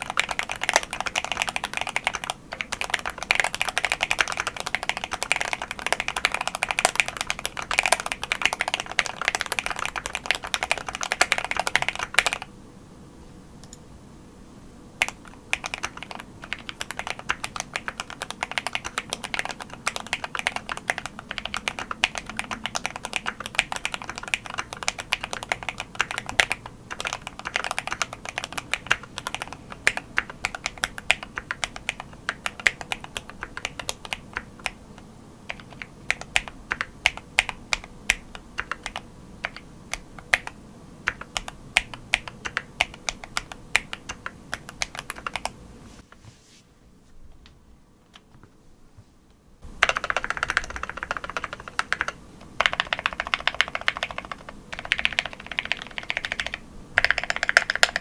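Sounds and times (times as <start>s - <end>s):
mechanical keyboard key clacks: 49.8s - 58.0s.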